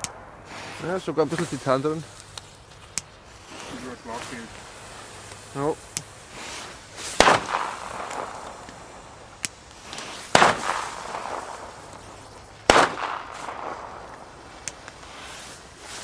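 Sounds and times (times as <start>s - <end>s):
firecrackers banging with echo: 6.0s - 15.6s
small firecracker pops: 7.1s - 15.0s.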